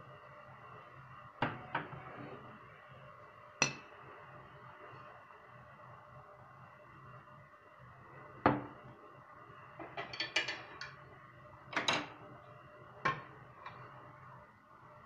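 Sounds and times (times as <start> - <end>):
faint steady hum: 0.0 - 15.0
dishes and utensils clattering: 9.8 - 10.9.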